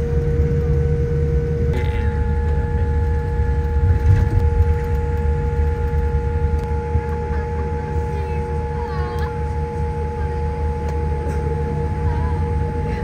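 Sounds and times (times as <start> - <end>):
aircraft cabin rumble: 0.0 - 13.0
jet engine whine: 0.0 - 13.0.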